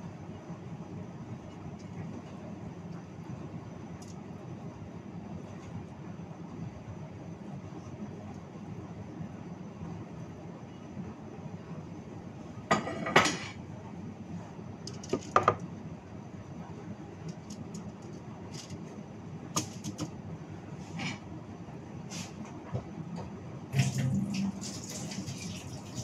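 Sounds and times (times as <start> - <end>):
dishes and utensils clattering: 12.7 - 13.6.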